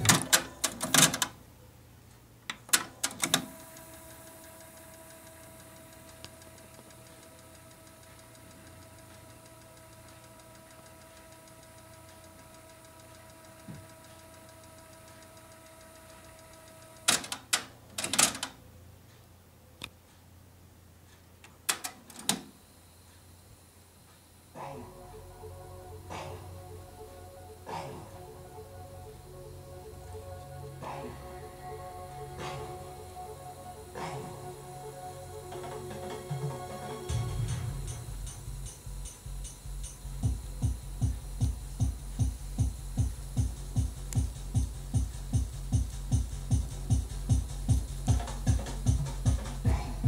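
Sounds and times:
cassette deck clicking and clunking: 0.0 - 1.4
tape transport whine: 0.0 - 1.4, 2.5 - 18.6, 21.4 - 50.0.

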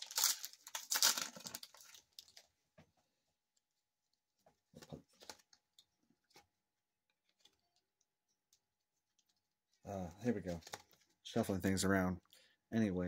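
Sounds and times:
foil wrapper crinkling: 0.0 - 2.5
cards rustling and tapping: 10.5 - 11.2.

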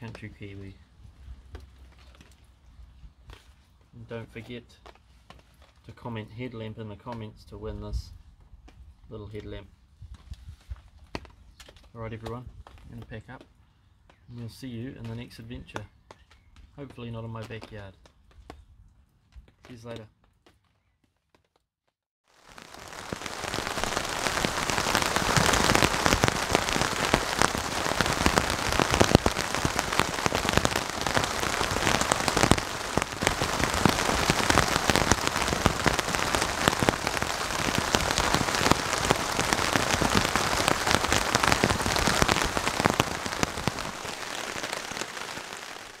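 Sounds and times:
heavy rain falling: 22.4 - 46.0.

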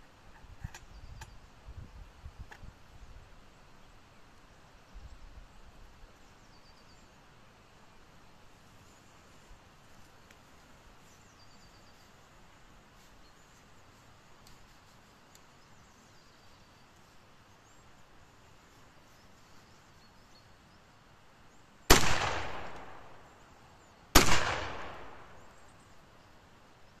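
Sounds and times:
shotgun shots: 21.9 - 23.2, 24.1 - 25.5.

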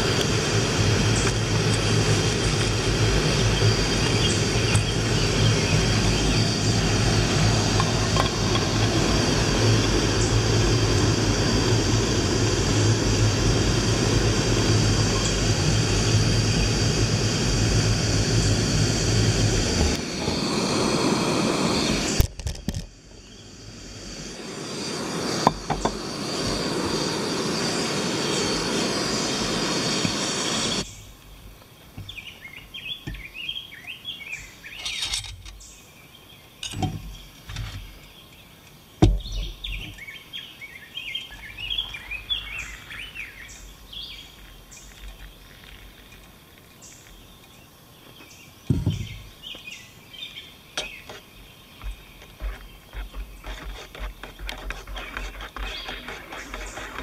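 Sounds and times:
gas stove roaring: 0.0 - 22.3, 23.0 - 31.0.

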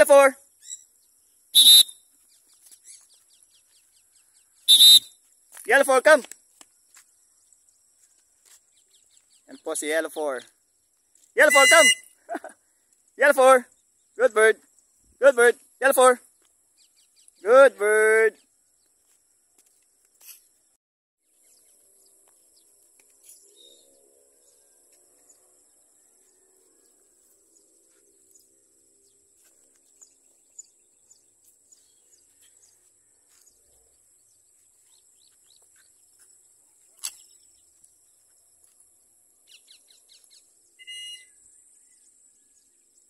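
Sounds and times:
small bird chirps: 0.5 - 5.3, 6.6 - 10.0, 16.3 - 17.5, 26.2 - 38.4, 39.4 - 43.0
louder bird call: 1.5 - 2.0, 4.6 - 5.2, 11.4 - 12.2, 40.8 - 41.4.

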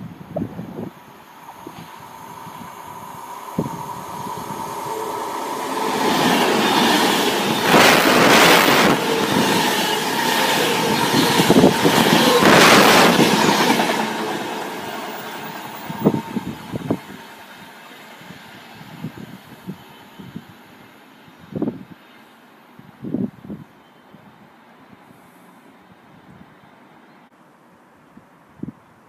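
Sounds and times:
wind buffeting microphone: 0.0 - 17.6, 18.2 - 20.6
electric train passing at speed: 0.0 - 27.1.

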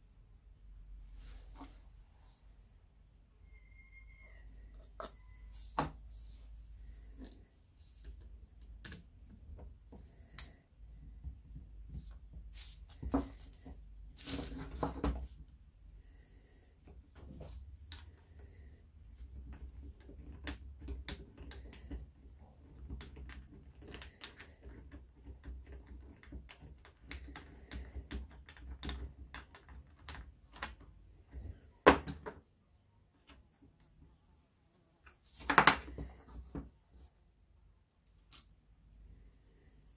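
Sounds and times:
spanner working at a lever: 19.9 - 22.1.

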